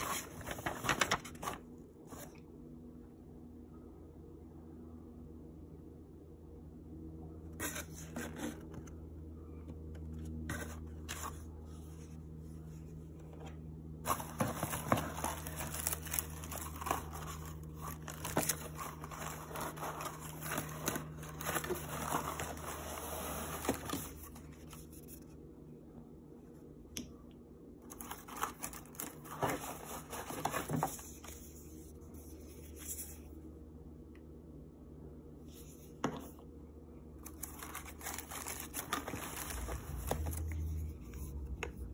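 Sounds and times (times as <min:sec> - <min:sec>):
packing paper crinkling: 0:00.0 - 0:01.7, 0:14.0 - 0:24.8, 0:27.9 - 0:31.2, 0:37.2 - 0:40.6.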